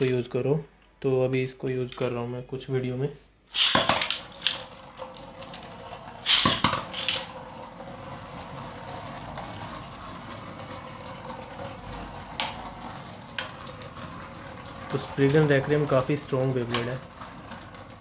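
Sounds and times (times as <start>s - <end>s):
spinning top launcher ripping: 3.5s - 7.4s
spinning tops whirring and scraping: 3.5s - 18.0s
plastic tops clattering: 3.6s - 18.0s.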